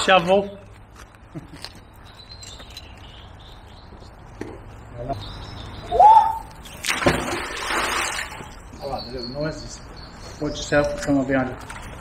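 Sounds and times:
small birds chirping: 1.7s - 6.8s, 8.6s - 12.0s
magnet splashing into water: 6.6s - 8.5s.

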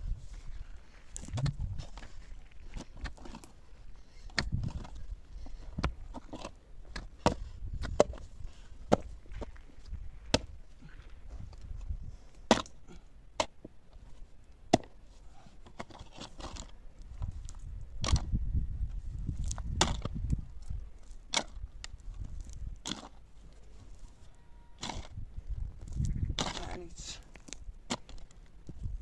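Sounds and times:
pick striking stony soil: 1.1s - 3.6s, 4.2s - 11.8s, 12.4s - 13.7s, 14.6s - 23.3s, 24.8s - 29.0s
soil being shovelled: 22.3s - 25.2s, 26.4s - 28.3s.

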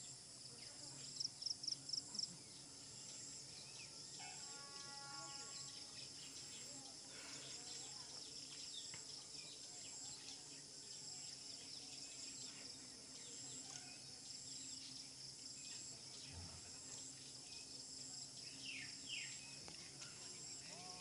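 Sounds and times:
high insect drone: 0.0s - 21.0s.

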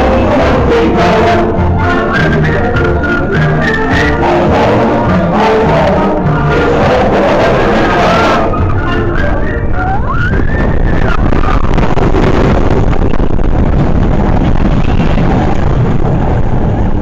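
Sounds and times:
roller coaster rumbling on track: 0.0s - 17.0s
wind noise on microphone: 0.0s - 17.0s.

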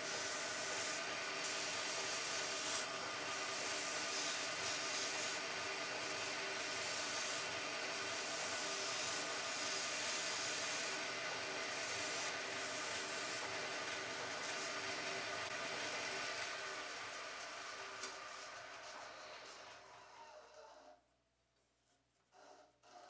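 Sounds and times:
sanding hiss on wood: 0.0s - 11.0s, 11.6s - 13.5s
lathe motor hum: 0.0s - 20.9s.

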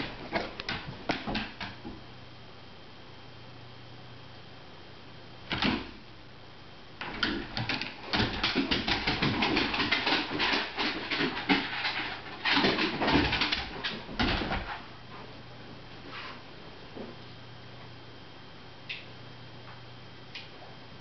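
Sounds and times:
dog claws scrabbling on wood: 0.0s - 1.9s, 7.0s - 14.9s.

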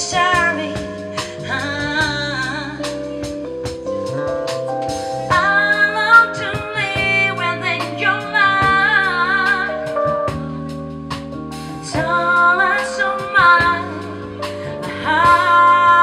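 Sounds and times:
woman singing: 0.0s - 3.4s, 5.3s - 10.1s, 11.8s - 16.0s
drum kit with cymbals: 0.0s - 16.0s
keyboard chords: 0.0s - 16.0s.

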